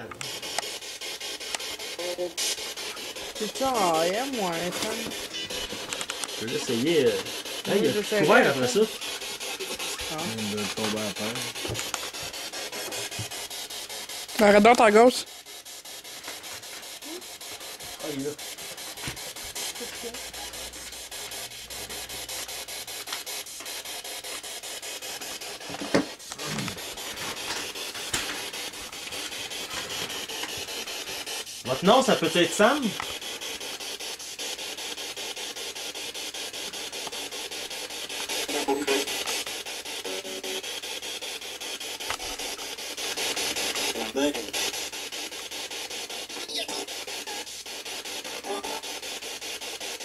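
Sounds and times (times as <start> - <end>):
pulsing radio static hiss: 0.0 - 50.0
voice-like radio fragments: 38.4 - 39.2, 43.9 - 44.6, 46.4 - 47.4, 48.4 - 49.0.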